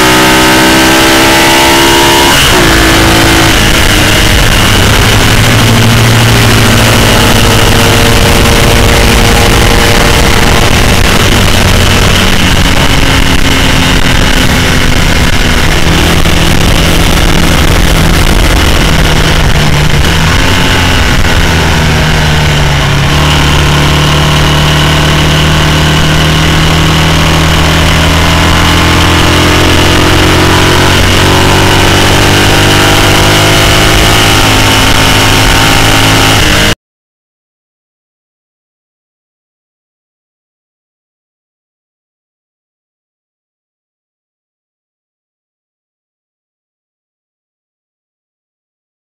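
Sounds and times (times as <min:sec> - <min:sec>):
racing engine at speed: 0:00.0 - 0:36.8.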